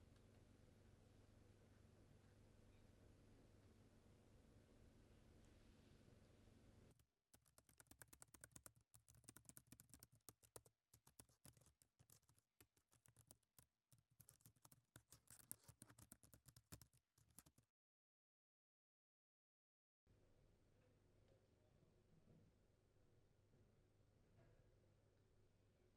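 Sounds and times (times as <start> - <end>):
faint low hum: 0.0 - 7.0
typing on laptop keyboard: 7.4 - 17.6.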